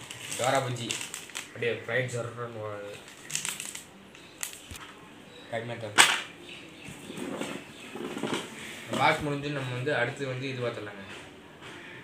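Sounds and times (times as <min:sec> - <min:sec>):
packaging slaps: 0:00.0 - 0:01.5.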